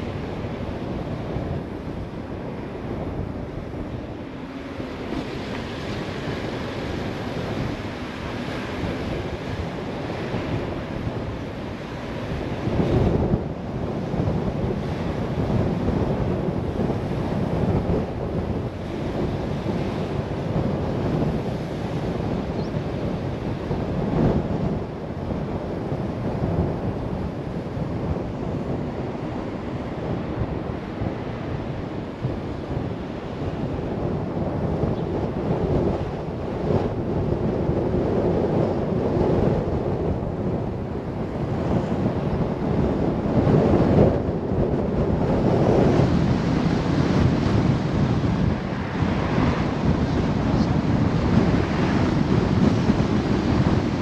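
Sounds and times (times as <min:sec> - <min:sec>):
car road noise: 0:00.0 - 0:22.3, 0:45.6 - 0:54.0
wind rushing over microphone: 0:00.0 - 0:54.0.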